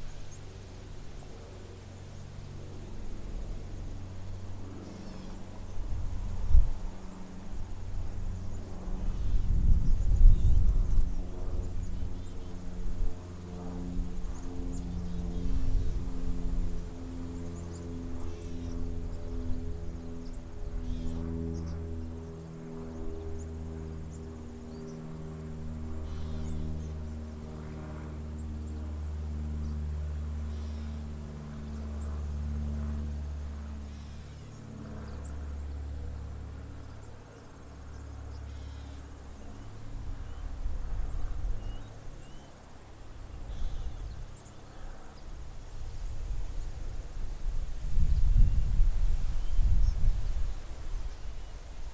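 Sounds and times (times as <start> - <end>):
swallows chirping: 17.3 - 22.1, 26.0 - 27.5, 36.8 - 40.5, 41.6 - 42.6, 43.3 - 45.2.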